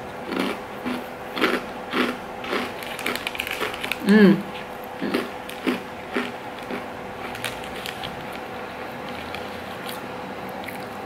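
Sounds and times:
faint hum: 0.0 - 11.0
crunchy cracker bites: 0.3 - 4.1, 5.0 - 8.5
foil wrapper crinkling: 2.8 - 4.1, 7.3 - 8.4.

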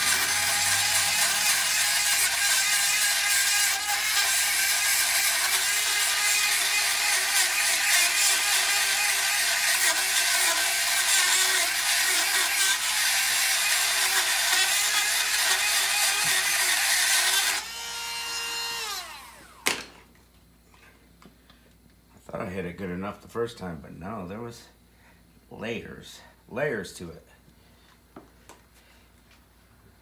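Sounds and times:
rotary tool grinding whine: 0.0 - 19.8.

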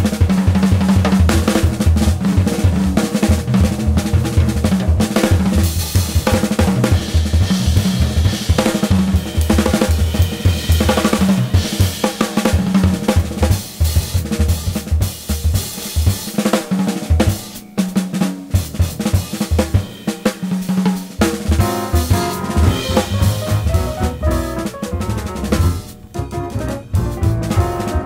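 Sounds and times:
busy drum-kit beat: 0.0 - 28.0
pulsing bass line: 21.7 - 28.0.

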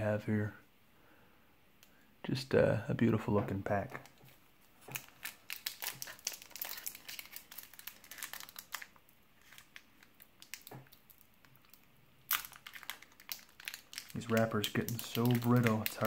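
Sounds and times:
plastic wrapper crinkling: 3.8 - 16.0.

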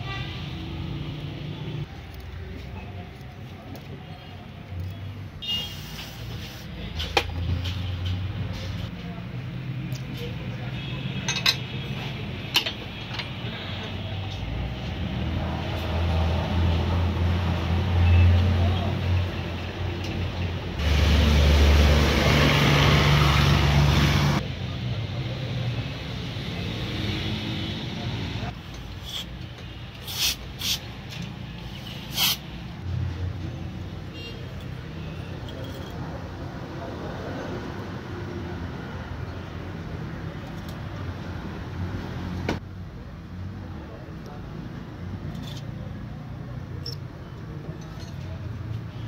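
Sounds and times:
metal parts clicking and clinking: 35.4 - 36.0, 45.3 - 45.7, 47.8 - 48.3.

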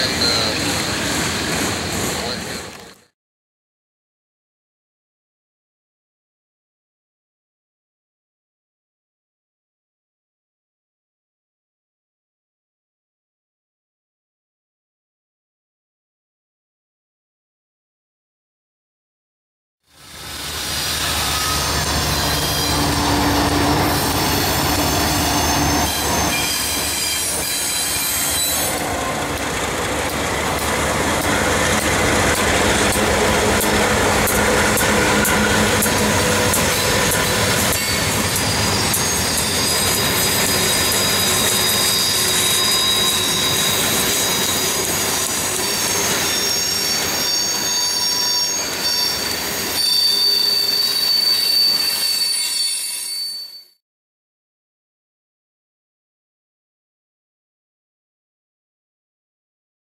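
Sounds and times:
diesel locomotives passing: 0.0 - 3.0, 20.0 - 48.1
high steady wheel squeal: 0.0 - 3.0, 20.0 - 53.8
train wheels clicking over rail joints: 26.0 - 47.2.

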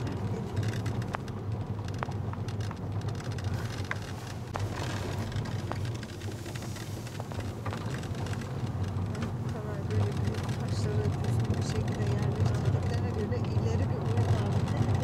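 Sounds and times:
car engine and road rumble: 0.0 - 15.0
small clicks and ticks: 0.0 - 15.0.

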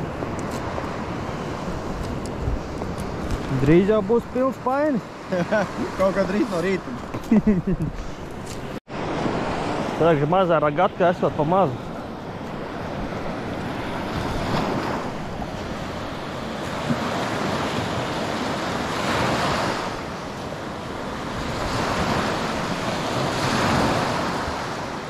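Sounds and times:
wind buffeting microphone: 0.0 - 10.0
surf breaking on shore: 0.0 - 25.0.

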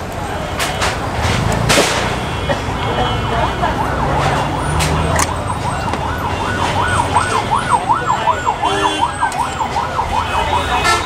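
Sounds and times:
siren yelping: 3.4 - 11.0.

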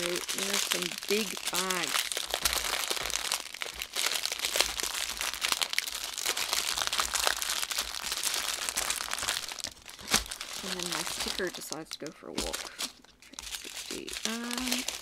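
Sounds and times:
plastic bags crinkling: 0.0 - 15.0.

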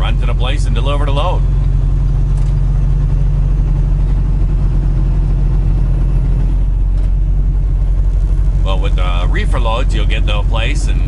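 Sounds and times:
diesel truck engine humming: 0.0 - 11.0
road noise: 0.0 - 11.0.

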